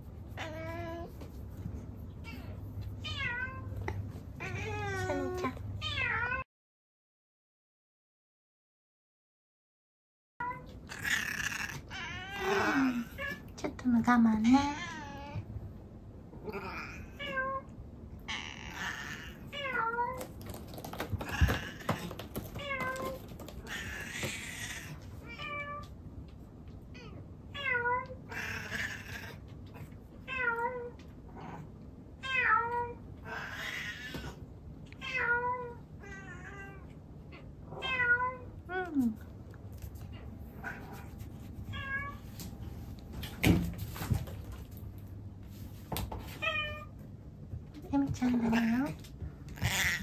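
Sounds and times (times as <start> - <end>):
cat meowing: 18.3 - 20.2, 49.6 - 50.0.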